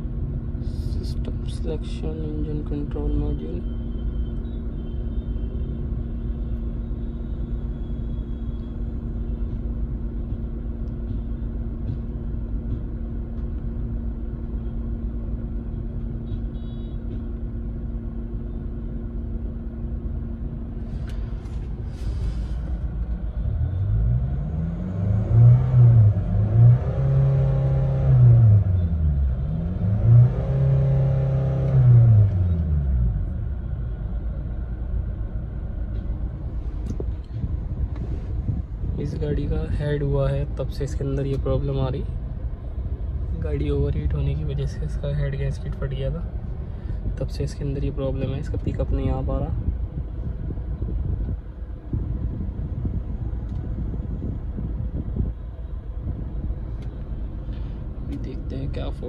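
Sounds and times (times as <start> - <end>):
car engine idling: 0.0 - 59.0
car engine revving: 23.4 - 33.4.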